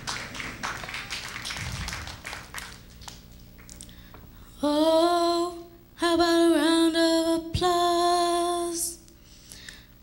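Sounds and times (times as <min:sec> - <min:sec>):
audience clapping: 0:00.0 - 0:03.9
young female singing: 0:04.6 - 0:09.1.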